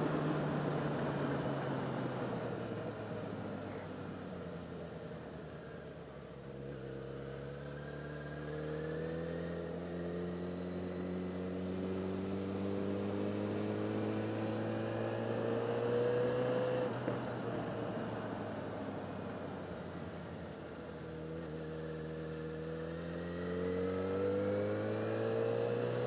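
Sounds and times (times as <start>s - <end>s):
motorcycle engine accelerating: 5.6s - 26.0s.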